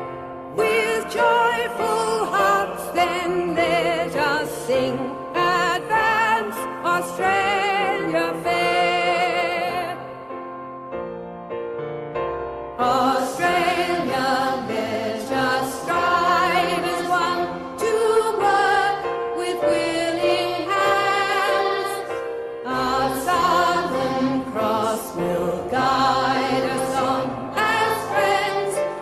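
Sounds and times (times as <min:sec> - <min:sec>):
choir singing slow song: 0:00.5 - 0:10.0, 0:12.8 - 0:29.0.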